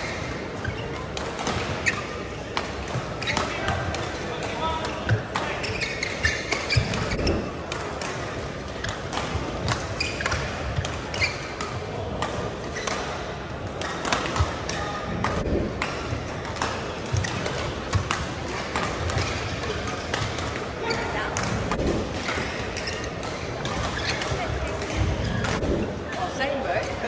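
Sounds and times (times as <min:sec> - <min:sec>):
shoe squeaks: 0:00.0 - 0:01.1, 0:01.7 - 0:02.3, 0:03.2 - 0:04.4, 0:05.4 - 0:07.6, 0:10.0 - 0:11.6, 0:12.8 - 0:13.0, 0:22.2 - 0:25.8.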